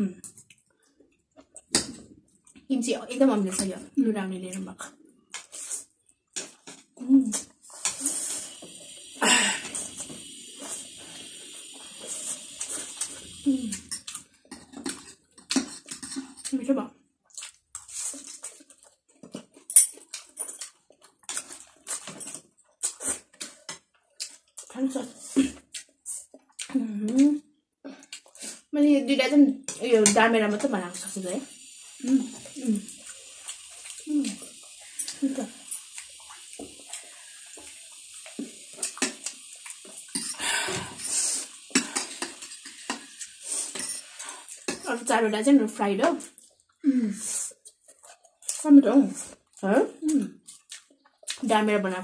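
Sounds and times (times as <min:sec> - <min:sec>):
noodles slurped and chewed: 0:04.9 - 0:16.5, 0:17.2 - 0:28.7, 0:30.9 - 0:45.0, 0:46.2 - 0:51.6
long slurp: 0:07.3 - 0:13.8, 0:31.5 - 0:44.8.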